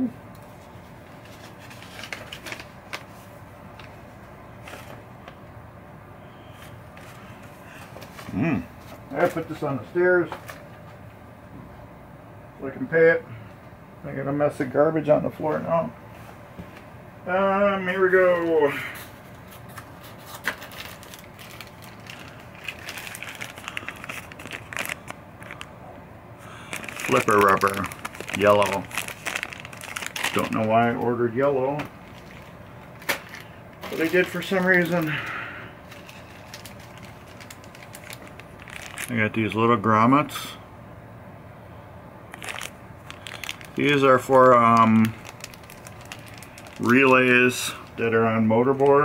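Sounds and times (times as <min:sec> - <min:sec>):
paper crinkling and rustling: 0:00.5 - 0:04.0, 0:04.6 - 0:05.1, 0:19.0 - 0:25.7, 0:26.6 - 0:35.2, 0:35.8 - 0:39.2, 0:42.3 - 0:49.0.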